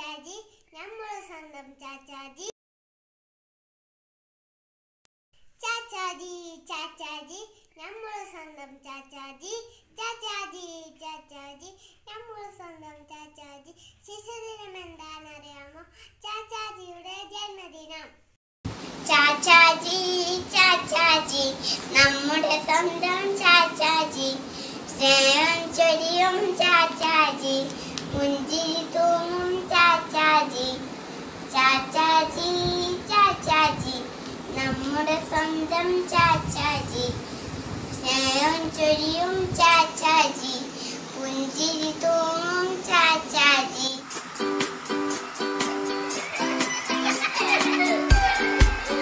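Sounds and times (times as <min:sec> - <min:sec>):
girl singing alone: 0:18.8 - 0:30.9, 0:31.5 - 0:37.2, 0:38.0 - 0:44.3
girl singing solo: 0:31.5 - 0:37.2.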